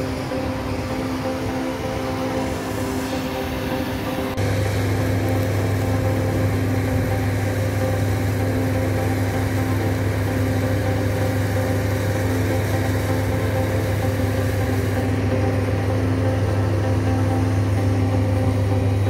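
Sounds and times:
hose spraying water: 0:00.0 - 0:17.4
deep steady hum: 0:00.0 - 0:19.0
engine running: 0:00.0 - 0:19.0.

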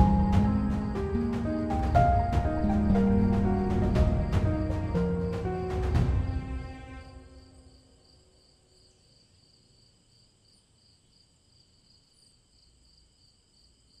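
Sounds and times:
music chord: 0:00.0 - 0:08.4.

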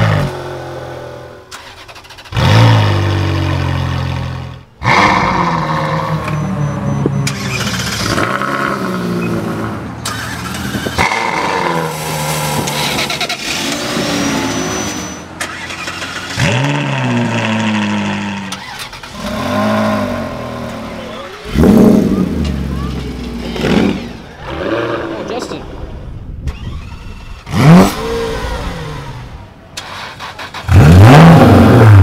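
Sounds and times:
car engines revving: 0:00.0 - 0:32.0.

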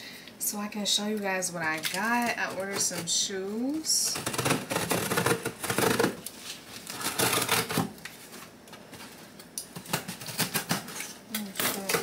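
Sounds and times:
package crinkling and tearing: 0:01.7 - 0:02.8, 0:04.2 - 0:08.2.

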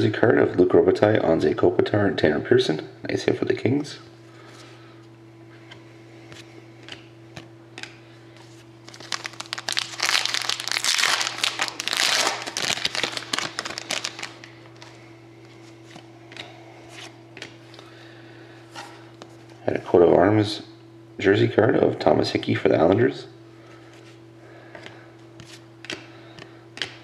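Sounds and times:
steady low hum: 0:00.0 - 0:27.0
foil wrapper crinkling: 0:08.8 - 0:15.0.

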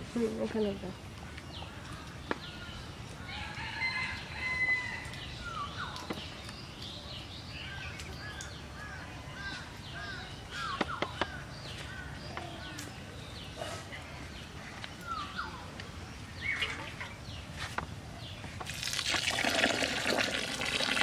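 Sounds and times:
birds chirping: 0:00.0 - 0:21.0
rooster crowing: 0:03.3 - 0:05.2.

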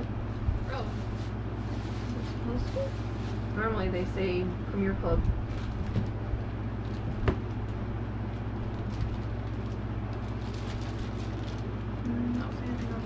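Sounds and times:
steady low hum: 0:00.0 - 0:13.0
plastic bag crinkling: 0:05.3 - 0:13.0.

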